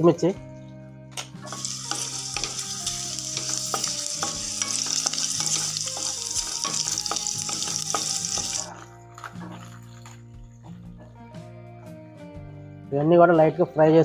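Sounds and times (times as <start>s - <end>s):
chillies sizzling in hot oil: 1.4s - 8.7s
wooden spatula stirring: 1.5s - 9.3s.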